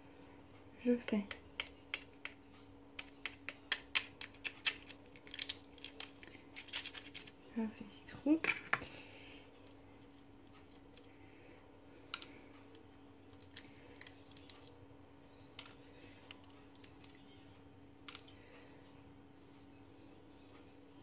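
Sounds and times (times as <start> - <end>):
faint steady hum: 0.0 - 21.0
fingers tapping eggshell: 1.1 - 7.3, 12.1 - 14.8, 15.4 - 17.3.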